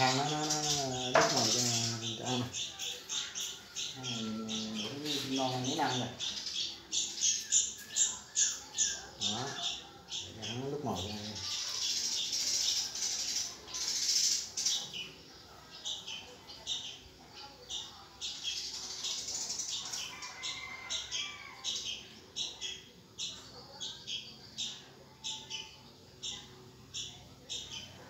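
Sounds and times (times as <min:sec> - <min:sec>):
nestlings begging calls: 0:00.0 - 0:28.0.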